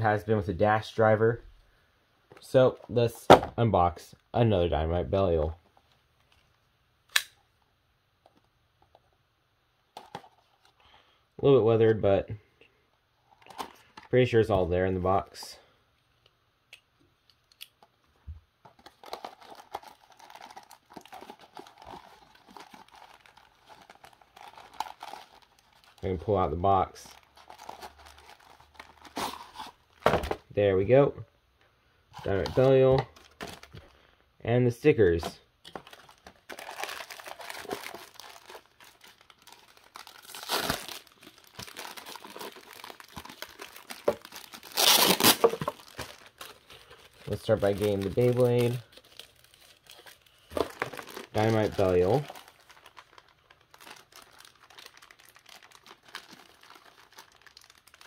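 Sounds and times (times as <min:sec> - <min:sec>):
cardboard box crinkling: 0:18.7 - 0:26.0, 0:27.1 - 0:30.3, 0:32.3 - 0:33.9, 0:35.7 - 0:58.0.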